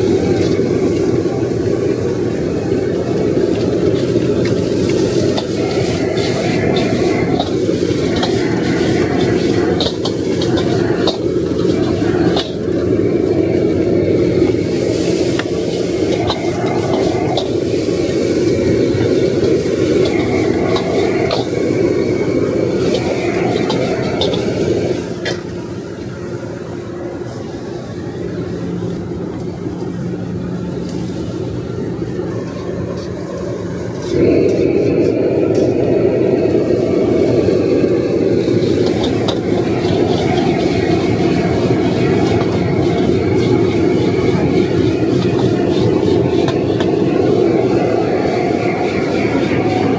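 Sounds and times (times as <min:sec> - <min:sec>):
gas burner rushing: 0:00.0 - 0:49.9
spatula clanking and scraping wok: 0:03.5 - 0:12.8, 0:14.6 - 0:25.5, 0:38.4 - 0:49.9.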